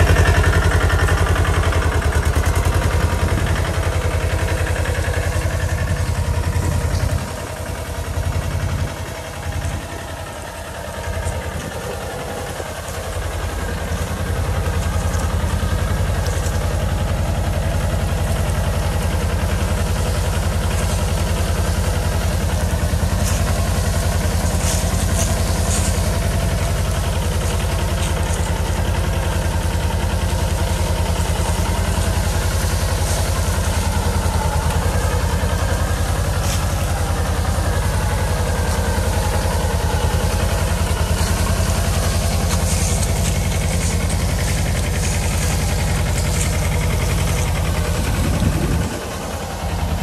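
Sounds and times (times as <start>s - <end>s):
tractor diesel engine running: 0.0s - 50.0s.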